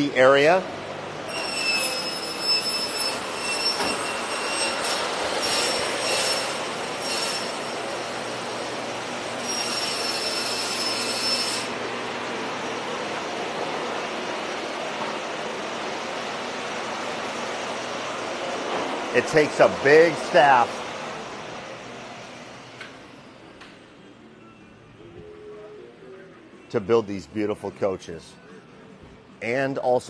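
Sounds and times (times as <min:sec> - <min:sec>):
shop noise hiss: 0:00.0 - 0:30.0
woodworking machine whine: 0:01.2 - 0:23.6.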